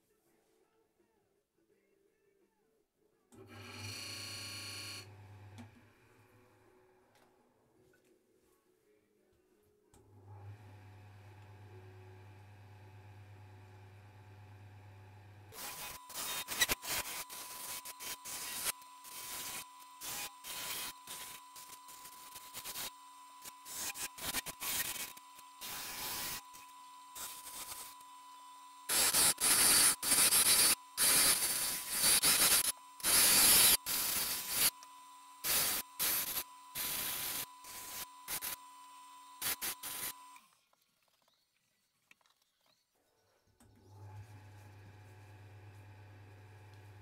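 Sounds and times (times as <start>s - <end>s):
lathe tool scraping wood: 15.6s - 28.0s, 28.9s - 34.8s.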